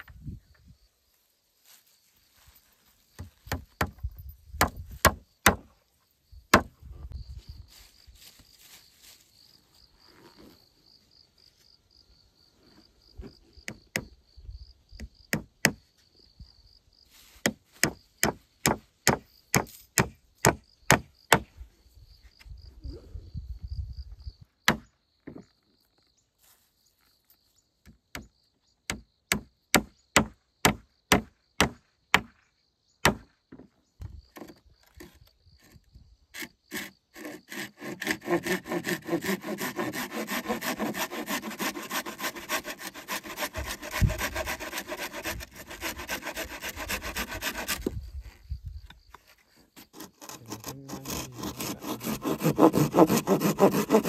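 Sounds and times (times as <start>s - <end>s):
high insect chirr: 0.2s - 54.0s
sharp strikes on wood: 4.6s - 5.7s, 6.5s - 6.8s, 17.4s - 21.5s, 24.6s - 25.4s, 28.9s - 32.4s, 33.0s - 34.5s
back-and-forth rasping: 36.4s - 48.0s, 49.8s - 54.0s.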